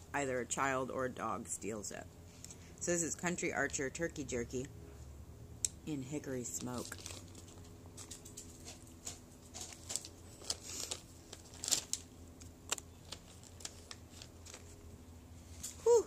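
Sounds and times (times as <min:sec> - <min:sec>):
plastic packaging crinkling: 0:06.5 - 0:14.9.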